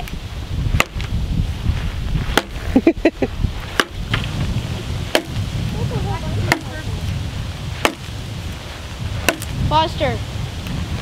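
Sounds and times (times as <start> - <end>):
machete chopping dry branch: 0.7 - 1.2, 2.3 - 2.6, 3.7 - 4.4, 5.0 - 5.5, 6.4 - 6.8, 7.7 - 8.2, 9.2 - 9.6.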